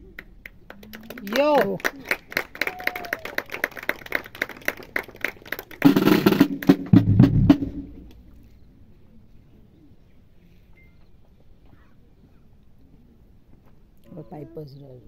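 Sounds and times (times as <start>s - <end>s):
snare drum roll: 5.8s - 8.1s
bass drum beats: 5.9s - 8.1s.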